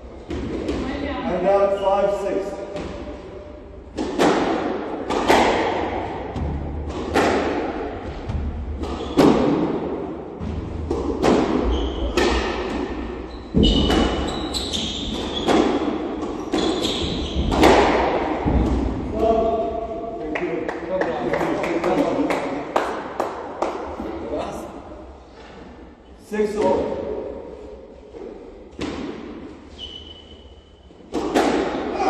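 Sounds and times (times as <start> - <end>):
shoes squeaking on wooden floor: 11.6 - 12.2, 13.2 - 17.7, 29.7 - 30.8.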